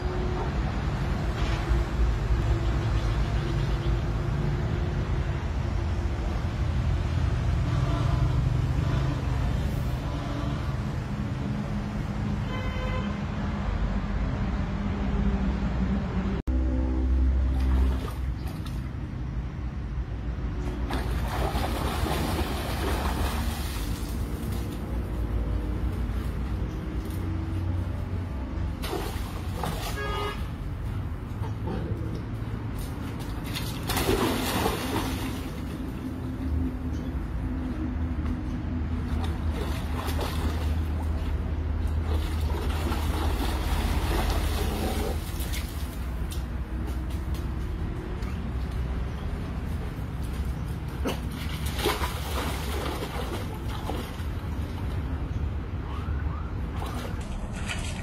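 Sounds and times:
dog splashing through water: 20.8s - 25.1s, 28.8s - 30.4s, 32.8s - 35.9s, 39.0s - 46.4s, 50.9s - 55.0s, 56.6s - 58.0s.

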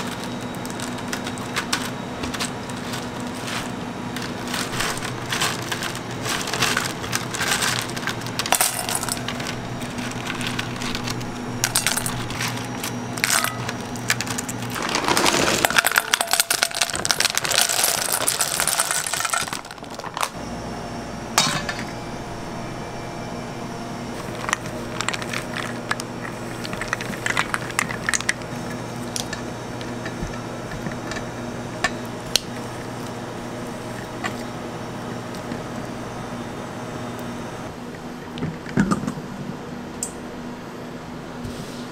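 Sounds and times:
chocolate discs rattling into pot: 0.0s - 20.4s, 24.2s - 31.4s
steady low hum: 0.0s - 41.9s.

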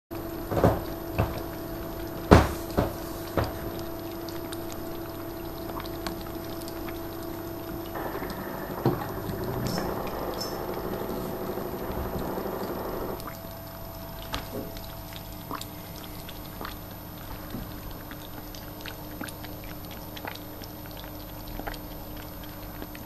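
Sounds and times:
steady hum: 0.1s - 23.0s
loud knocks: 0.5s - 1.5s, 2.2s - 3.8s
kitten lapping milk: 15.1s - 23.0s.

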